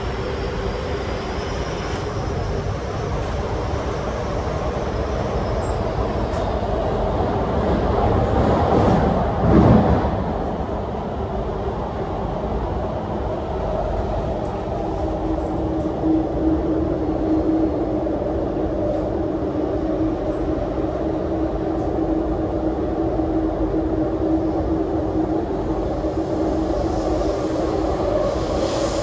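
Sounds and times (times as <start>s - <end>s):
train wheels rumbling on track: 0.0s - 29.0s.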